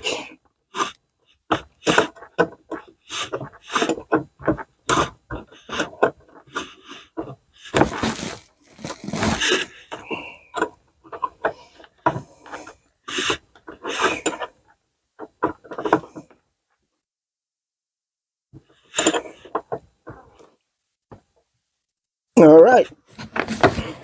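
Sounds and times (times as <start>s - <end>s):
scraping rustle: 7.8s - 9.7s.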